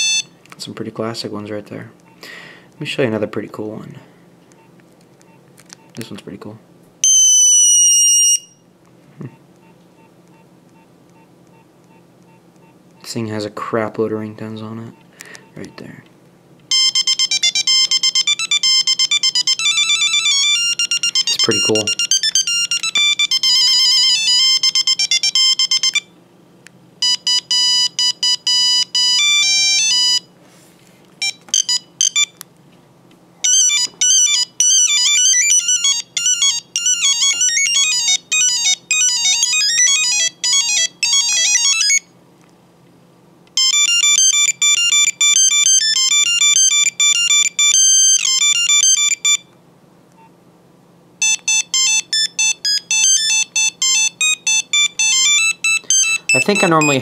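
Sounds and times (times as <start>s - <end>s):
phone beeping ringtone melodies: 0.0s - 0.4s, 7.0s - 8.6s, 16.7s - 26.2s, 27.0s - 30.3s, 31.2s - 32.4s, 33.4s - 42.1s, 43.6s - 49.5s, 51.2s - 57.0s.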